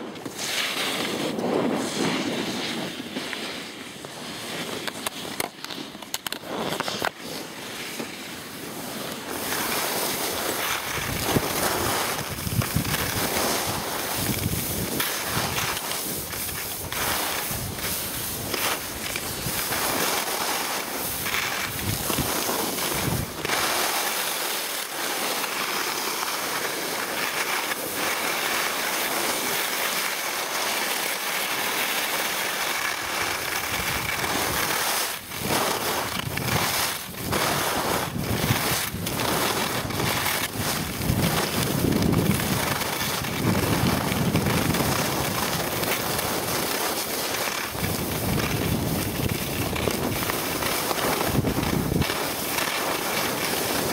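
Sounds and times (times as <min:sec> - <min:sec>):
skis scraping over snow: 0:00.0 - 0:53.9
wind rushing over microphone: 0:10.3 - 0:20.0, 0:21.1 - 0:23.6, 0:35.3 - 0:46.6, 0:47.5 - 0:52.4.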